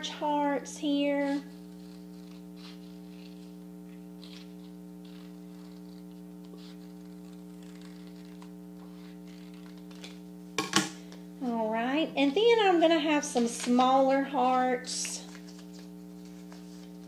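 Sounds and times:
electrical mains hum: 0.0s - 17.0s
scissors snipping paper: 0.9s - 3.5s, 4.1s - 10.2s.

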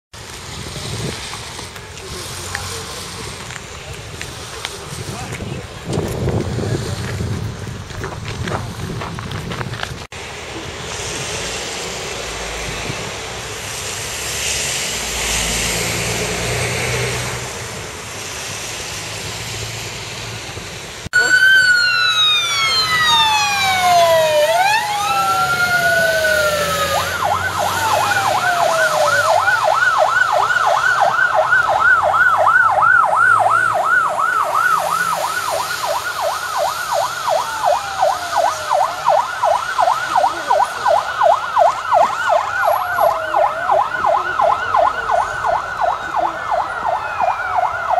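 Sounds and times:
street noise: 0.1s - 47.9s
wind: 0.1s - 47.9s
fire engine siren: 10.4s - 47.9s.

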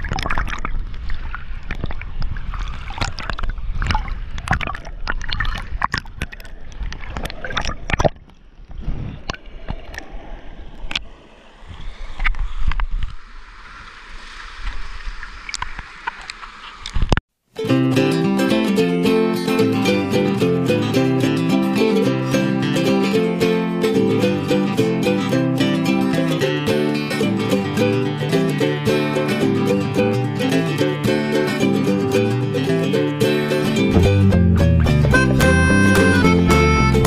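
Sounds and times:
water splashing against camera: 0.0s - 17.2s.

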